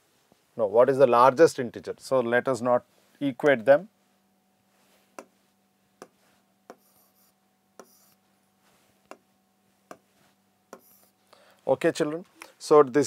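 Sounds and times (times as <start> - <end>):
faint electrical hum: 0.0 - 13.0
stylus tapping on whiteboard: 6.0 - 7.1, 7.8 - 8.1, 9.9 - 10.1, 10.7 - 11.0.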